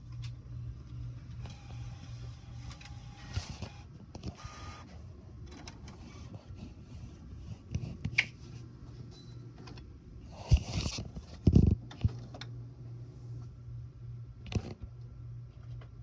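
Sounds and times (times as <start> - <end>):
low printer motor hum: 0.0 - 7.7
printer whirring: 0.2 - 7.0.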